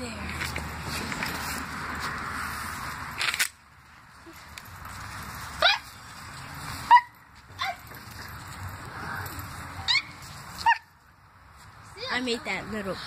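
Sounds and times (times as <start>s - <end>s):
small dog yapping: 5.6s - 5.9s, 6.9s - 7.8s, 9.8s - 10.9s.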